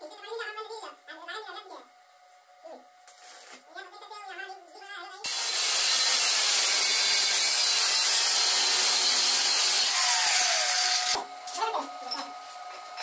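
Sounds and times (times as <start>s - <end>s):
angle grinder cutting steel: 5.2s - 11.2s.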